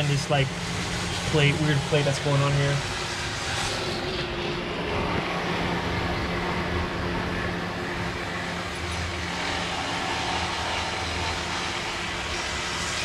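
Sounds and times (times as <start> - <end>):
car engine idling: 0.0 - 3.4.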